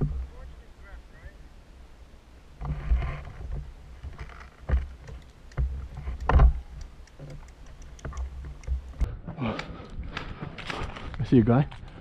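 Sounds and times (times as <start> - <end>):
rustling of leafy suit: 9.4 - 12.0.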